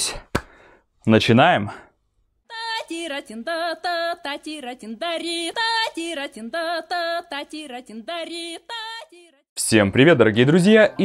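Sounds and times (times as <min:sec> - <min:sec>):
high voice singing with vibrato: 0:02.5 - 0:09.4.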